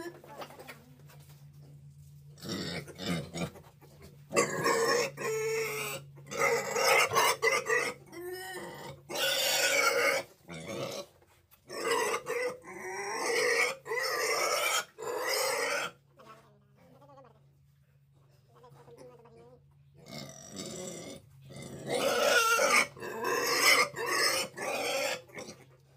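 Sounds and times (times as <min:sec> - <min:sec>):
pig squealing: 0:02.4 - 0:03.7, 0:04.3 - 0:11.1, 0:11.7 - 0:16.0, 0:20.0 - 0:25.7.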